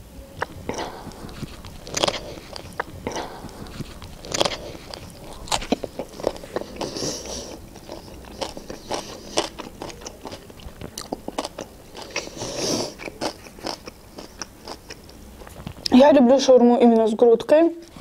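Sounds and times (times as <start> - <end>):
person chewing crunchy food: 0.4 - 15.9.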